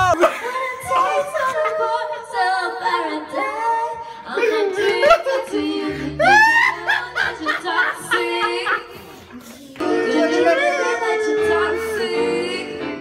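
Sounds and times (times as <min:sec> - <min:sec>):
person singing unaccompanied: 0:09.7 - 0:13.0.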